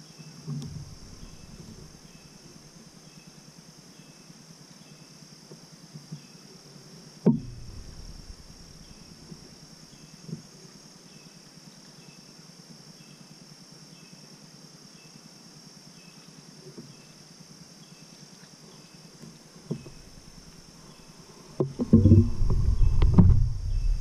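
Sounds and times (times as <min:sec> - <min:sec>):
faint chirps: 0:00.1 - 0:05.1, 0:07.4 - 0:10.2, 0:19.7 - 0:24.0
high insect buzz: 0:00.2 - 0:05.4, 0:07.0 - 0:10.4, 0:13.9 - 0:24.0
sharp knock: 0:21.6 - 0:24.0.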